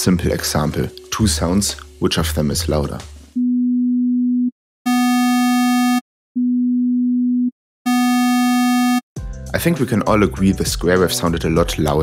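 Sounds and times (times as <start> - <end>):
buzzy square wave tone: 4.9 - 6.0, 7.9 - 9.0.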